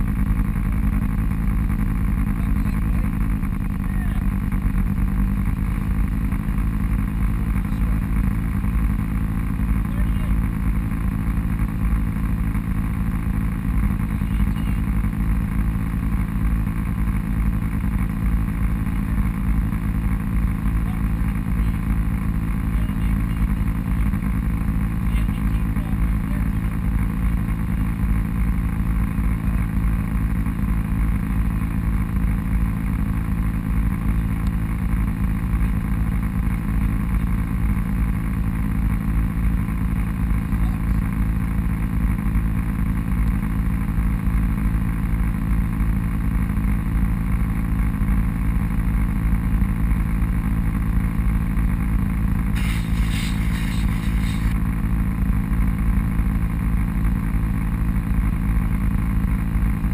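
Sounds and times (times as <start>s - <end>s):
vehicle engine running: 0.0s - 59.9s
brief higher hiss: 52.5s - 54.6s.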